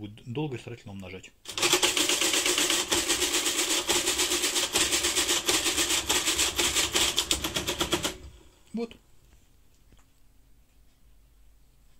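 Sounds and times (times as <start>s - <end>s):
calculator clicks clattering: 1.5s - 8.4s.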